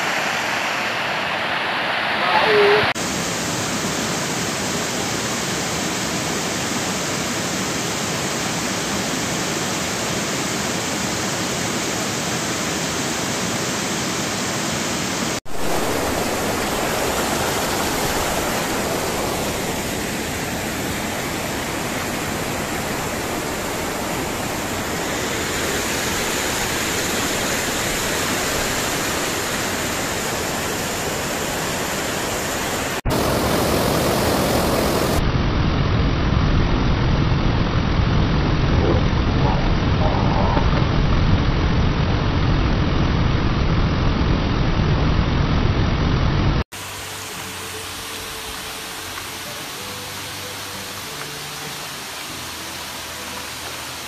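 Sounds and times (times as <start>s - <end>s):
waterfall rushing: 0.0s - 35.3s, 46.7s - 54.0s
water tumbling over rocks: 15.5s - 29.8s.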